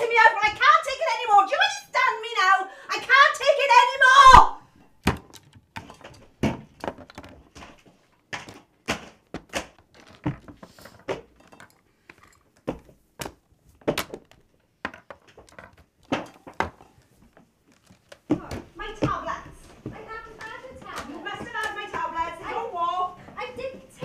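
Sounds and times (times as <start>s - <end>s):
irregular thuds and knocks: 5.0s - 11.5s, 12.6s - 22.6s.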